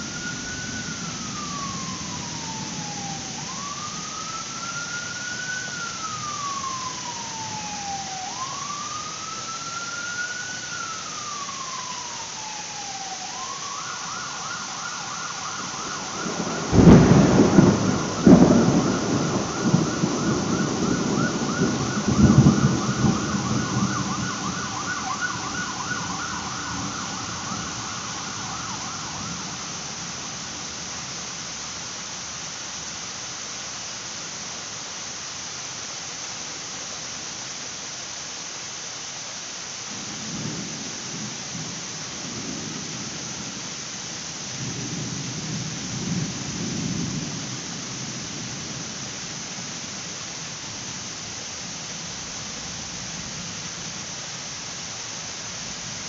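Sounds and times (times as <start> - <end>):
thunderclap and rolling thunder: 0.0 - 4.9, 15.6 - 31.0, 40.0 - 43.7, 44.5 - 49.7
emergency vehicle siren: 0.0 - 31.7
heavy rain: 0.0 - 56.0.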